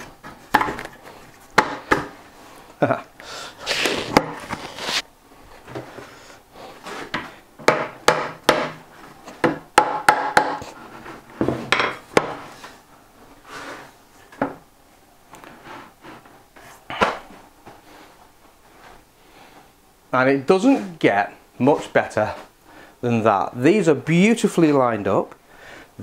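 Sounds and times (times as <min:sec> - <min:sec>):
wood scraping: 0:03.6 - 0:07.9, 0:10.2 - 0:14.6, 0:15.4 - 0:19.6
wooden knocks and taps: 0:07.1 - 0:08.8, 0:11.4 - 0:12.4.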